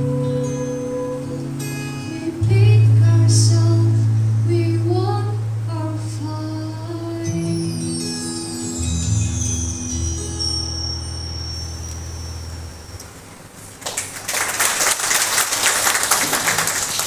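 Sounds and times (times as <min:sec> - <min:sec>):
instrumental accompaniment: 0:00.0 - 0:13.6.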